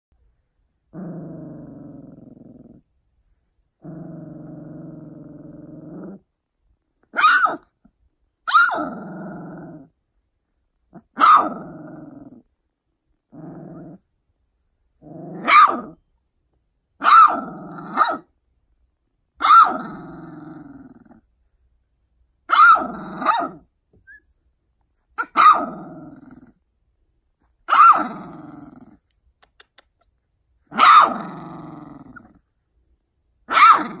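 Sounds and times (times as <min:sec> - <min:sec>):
puppy growling: 0:00.9 - 0:02.9, 0:03.8 - 0:06.3, 0:08.7 - 0:10.0, 0:10.9 - 0:12.5, 0:13.3 - 0:14.1, 0:15.0 - 0:16.0, 0:17.1 - 0:18.2, 0:19.6 - 0:21.3, 0:22.7 - 0:24.2, 0:25.2 - 0:26.6, 0:27.8 - 0:30.1, 0:30.7 - 0:32.5, 0:33.5 - 0:34.0
puppy yelping barks: 0:07.1 - 0:07.7, 0:08.4 - 0:08.9, 0:11.1 - 0:11.6, 0:15.4 - 0:16.0, 0:17.0 - 0:18.3, 0:19.4 - 0:19.8, 0:22.5 - 0:24.2, 0:25.2 - 0:25.7, 0:27.7 - 0:28.1, 0:30.7 - 0:31.2, 0:33.5 - 0:34.0.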